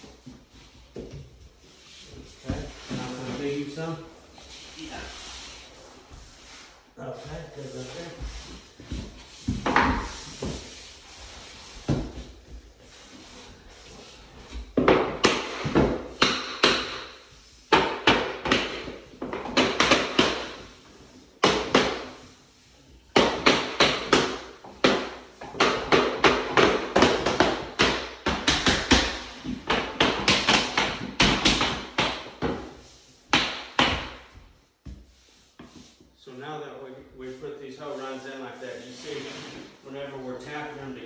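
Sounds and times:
tapping block knocking floor planks: 0:17.7 - 0:20.6.

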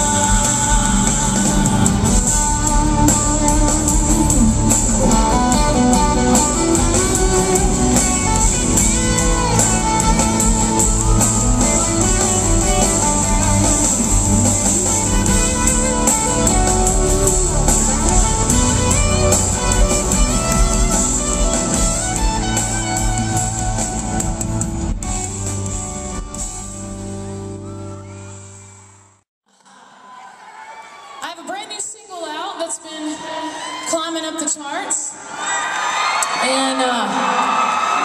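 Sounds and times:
live country band instrumental: 0:00.0 - 0:28.8.

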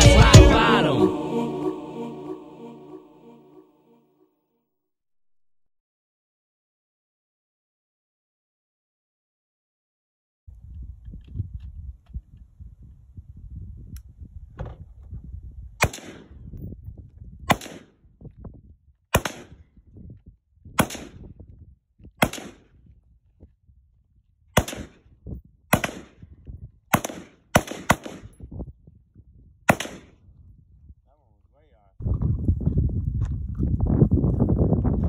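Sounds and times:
rifle gunshots: 0:15.8 - 0:16.3, 0:17.5 - 0:17.9, 0:19.1 - 0:19.5, 0:20.8 - 0:21.2, 0:22.2 - 0:22.6, 0:24.6 - 0:25.0, 0:25.7 - 0:26.2, 0:26.9 - 0:28.4, 0:29.7 - 0:30.1.

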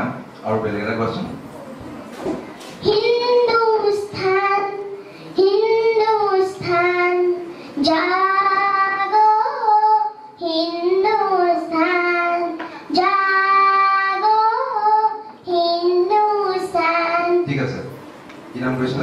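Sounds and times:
girl singing into a microphone: 0:02.8 - 0:17.4
short breaths: 0:05.0 - 0:05.4, 0:07.5 - 0:07.8.

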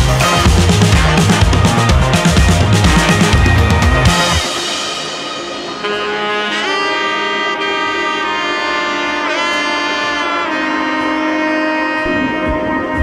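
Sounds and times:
music of long held notes: 0:00.0 - 0:13.0.

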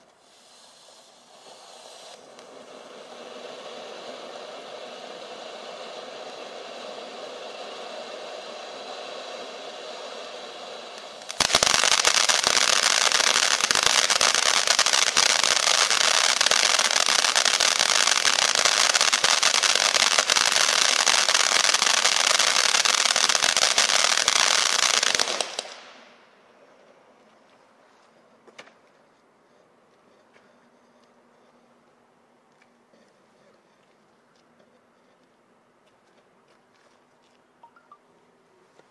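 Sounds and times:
firework crackling: 0:00.0 - 0:26.5
hiss of spraying sparks: 0:00.2 - 0:25.8.

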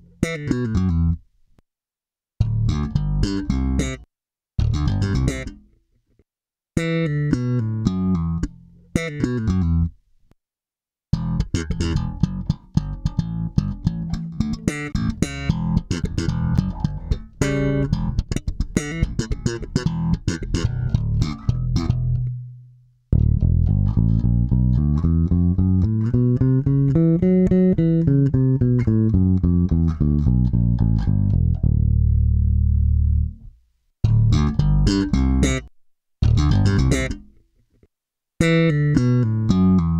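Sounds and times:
electric bass playing: 0:02.4 - 0:04.0, 0:04.6 - 0:05.6, 0:11.1 - 0:37.4, 0:38.4 - 0:39.9.

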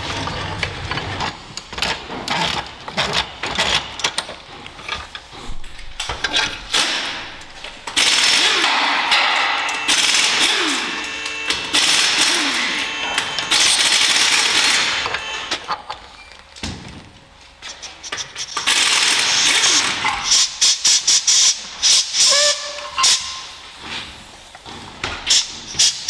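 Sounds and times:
metal parts clicking and knocking: 0:00.0 - 0:07.1.

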